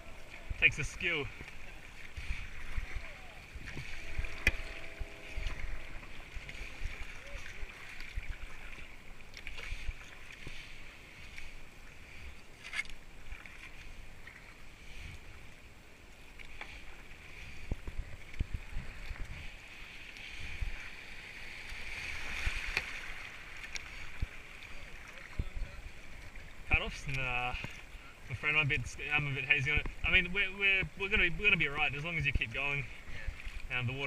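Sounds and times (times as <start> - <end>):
water rushing over rapids: 0.0 - 11.7
paddle strokes splashing: 0.0 - 34.0.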